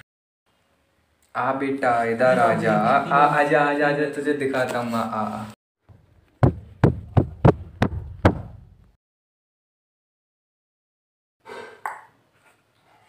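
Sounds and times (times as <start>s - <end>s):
blows thumping on a person: 6.4s - 8.7s.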